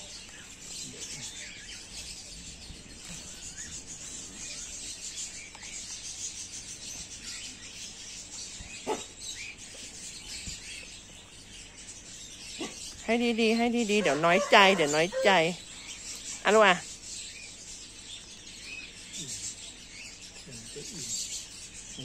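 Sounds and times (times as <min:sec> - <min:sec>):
outdoor ambience hiss: 0:00.0 - 0:22.0
small birds chirping: 0:00.0 - 0:22.0.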